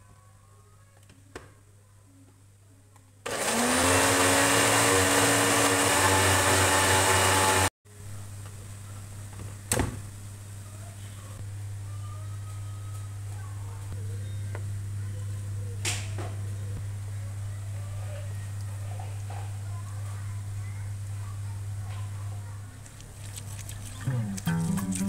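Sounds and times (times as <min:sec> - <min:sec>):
electric blender running: 0:03.3 - 0:07.7
low steady hum: 0:22.8 - 0:25.0.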